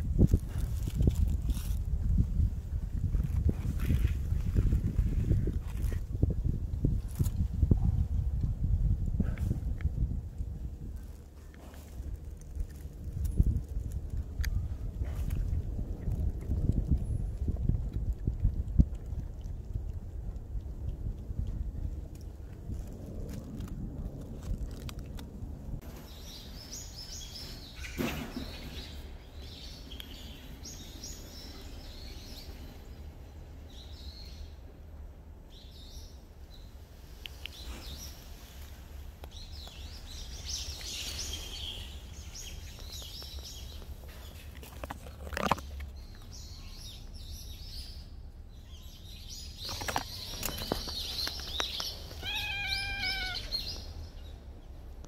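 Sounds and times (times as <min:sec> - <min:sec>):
small birds chirping: 0:25.8 - 0:34.6, 0:35.5 - 0:55.0.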